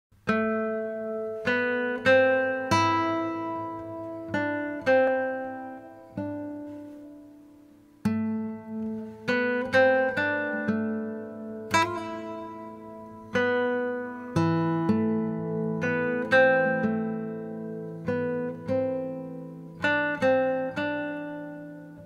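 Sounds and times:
slow instrumental music: 0.2 - 22.0.

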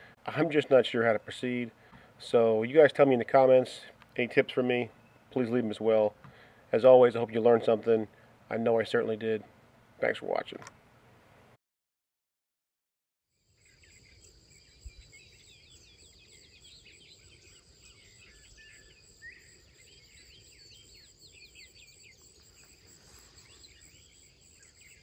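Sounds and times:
small birds chirping and singing: 0.0 - 9.3, 13.6 - 25.0.

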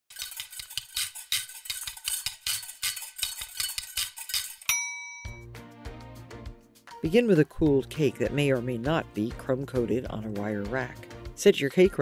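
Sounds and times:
clattering utensils and dishes: 0.1 - 4.8
bell-like ding: 4.7 - 5.5.

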